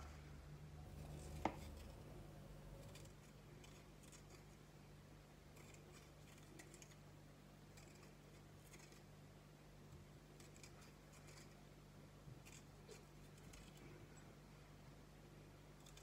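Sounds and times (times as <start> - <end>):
steady low hum: 0.0 - 16.0
knife cutting pepper: 0.9 - 2.0.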